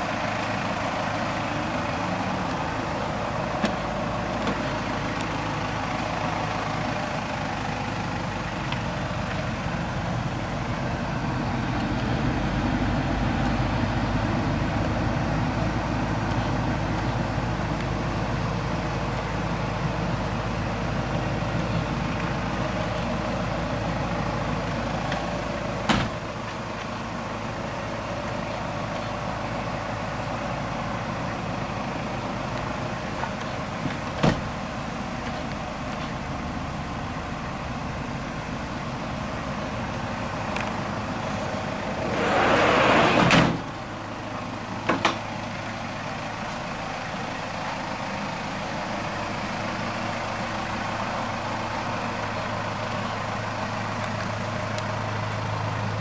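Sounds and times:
sliding van door rolling and shutting: 41.9 - 43.8.

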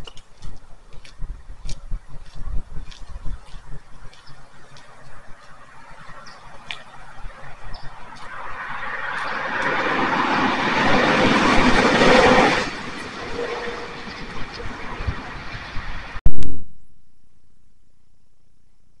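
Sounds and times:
truck driving past: 6.8 - 14.9.

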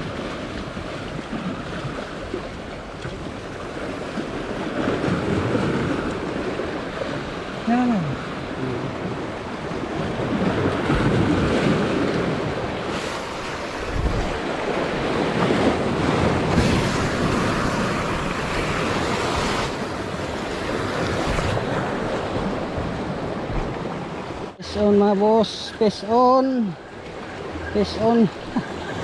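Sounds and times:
wind buffeting microphone: 0.0 - 24.5
sea surf washing in: 0.0 - 29.0.

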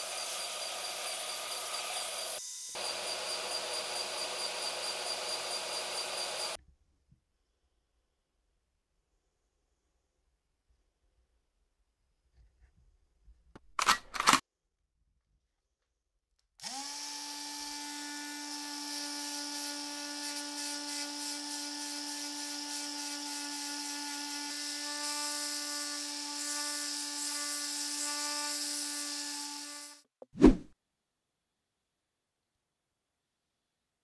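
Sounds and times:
detail sander sanding wood: 0.0 - 6.6.

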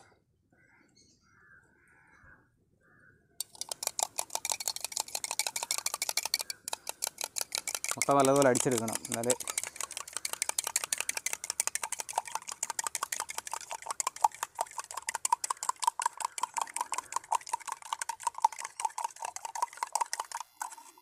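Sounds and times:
spoon clinking in metal cup: 3.4 - 12.6.

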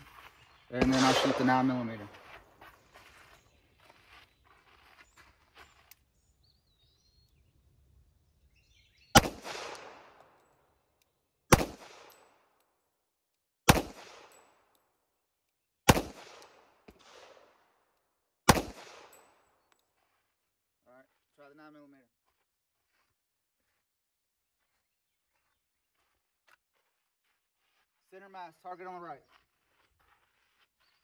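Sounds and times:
pistol shots with echo: 0.7 - 2.1, 9.2 - 10.3, 11.5 - 12.4, 13.7 - 14.6, 15.9 - 17.6, 18.5 - 19.4.

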